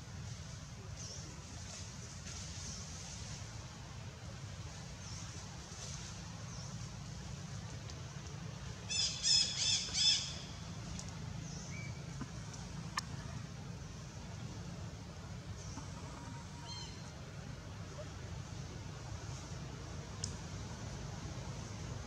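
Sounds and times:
steady background noise: 0:00.0 - 0:22.0.

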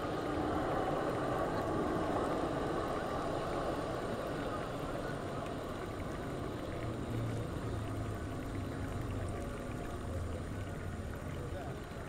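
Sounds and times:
city background noise: 0:00.0 - 0:12.0.

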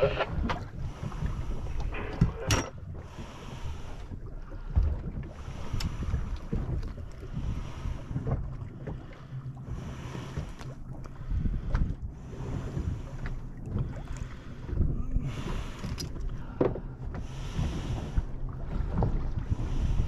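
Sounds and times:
water lapping around boat: 0:00.0 - 0:20.0
wind buffeting microphone: 0:00.0 - 0:20.0.

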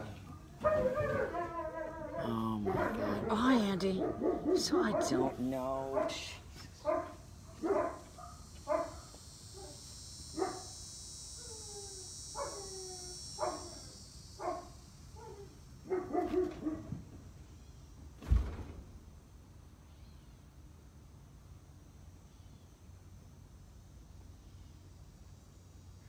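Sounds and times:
dog barking and yelping: 0:00.3 - 0:09.8, 0:12.4 - 0:13.8, 0:14.4 - 0:16.9
sharp thump: 0:18.2 - 0:18.9.

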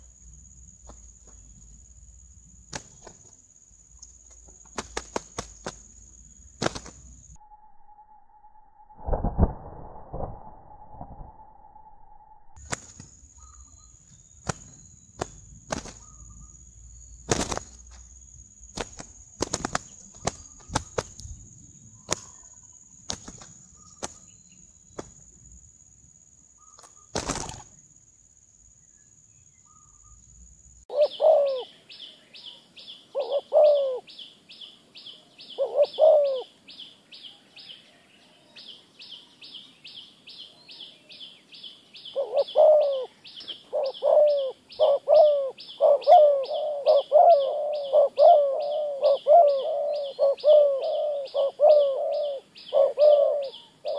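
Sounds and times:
dove wing slaps and flapping: 0:00.8 - 0:01.5, 0:02.7 - 0:03.3, 0:04.0 - 0:07.2, 0:12.6 - 0:13.2, 0:14.4 - 0:16.2, 0:17.2 - 0:21.3, 0:22.0 - 0:24.3, 0:24.9 - 0:25.3, 0:26.8 - 0:27.8
dove cooing: 0:30.9 - 0:31.8, 0:33.1 - 0:34.1, 0:35.5 - 0:36.5, 0:42.1 - 0:53.9.

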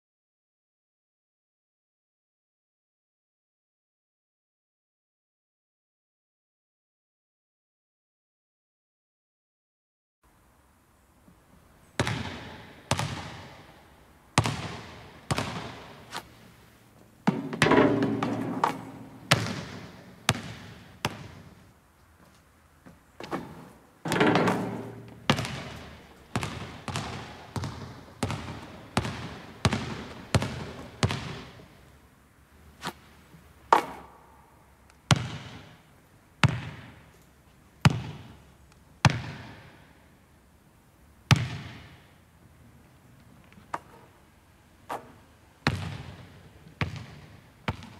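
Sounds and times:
basketball bouncing on wooden floor: 0:12.0 - 0:13.6, 0:14.4 - 0:16.0, 0:17.2 - 0:21.6, 0:23.2 - 0:31.7, 0:35.1 - 0:35.7, 0:36.4 - 0:37.0, 0:37.8 - 0:38.4, 0:39.0 - 0:39.7, 0:41.3 - 0:42.0, 0:44.9 - 0:47.9
loud clattering impact: 0:24.1 - 0:25.3.

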